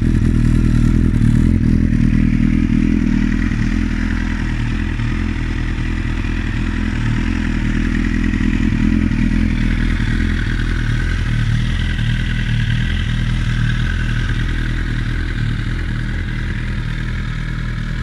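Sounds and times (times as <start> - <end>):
motorcycle engine idling: 0.0 - 18.0.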